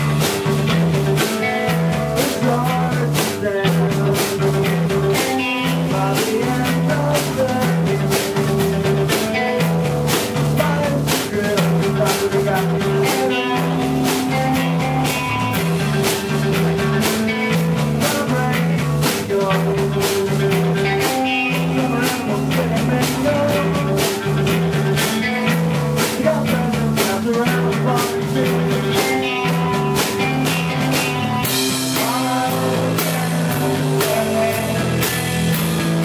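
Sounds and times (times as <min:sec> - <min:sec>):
live rock band playing: 0:00.0 - 0:36.0.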